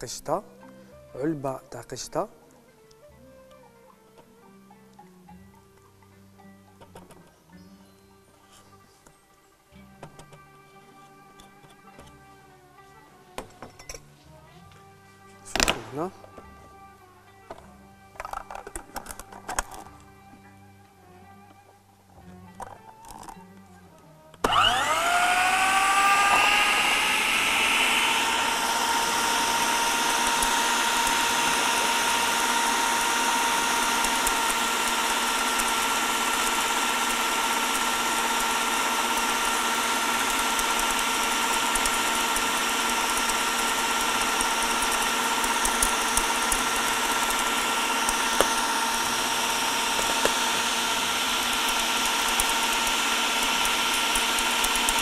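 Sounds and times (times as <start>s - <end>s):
blender motor whining: 24.4s - 55.0s.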